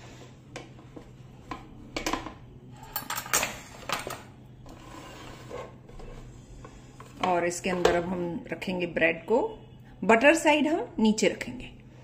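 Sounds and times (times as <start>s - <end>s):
faint steady hum: 0.0s - 12.0s
kitchen utensils clattering: 2.0s - 6.3s.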